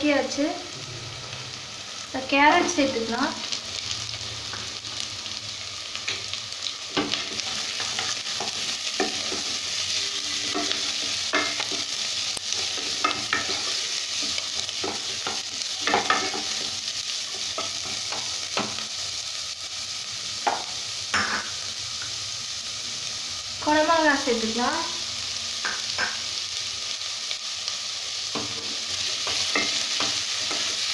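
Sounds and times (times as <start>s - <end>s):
vegetables sizzling in oil: 0.0s - 30.9s
spatula scraping and knocking pan: 6.9s - 16.8s, 28.3s - 30.9s.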